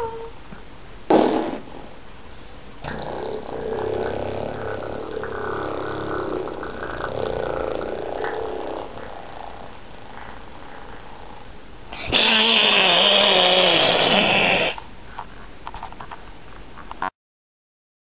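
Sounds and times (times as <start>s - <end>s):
child wavering vocal noise: 0.0s - 0.4s.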